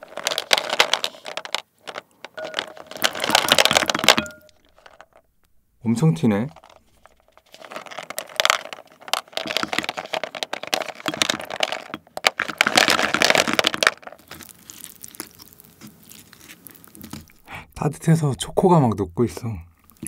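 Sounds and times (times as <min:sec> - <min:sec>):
candy balls rattling in plastic tub: 0:00.0 - 0:05.3, 0:05.9 - 0:18.2.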